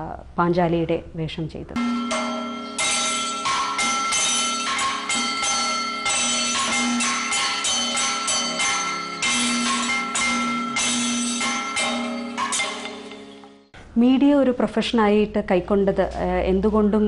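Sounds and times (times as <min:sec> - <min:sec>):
ringing metal percussion: 0:01.8 - 0:13.8.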